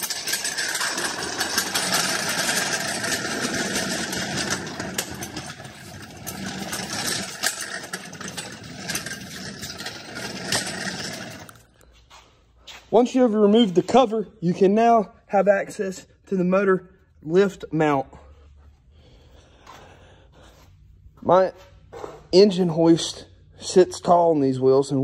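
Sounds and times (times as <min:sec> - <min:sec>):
engine hoist rolling on concrete: 0:00.0 - 0:12.1.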